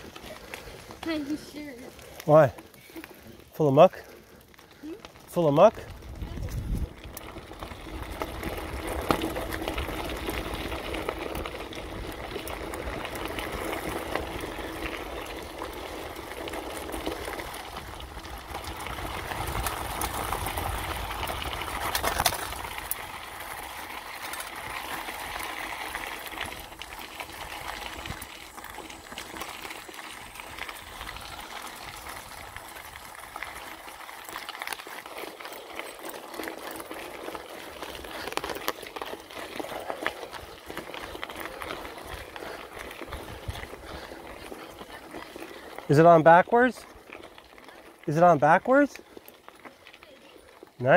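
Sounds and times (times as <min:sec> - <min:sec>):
bike rattles and ticks: 0:00.0 - 0:50.9
bike tyres crunching on gravel: 0:00.0 - 0:50.9.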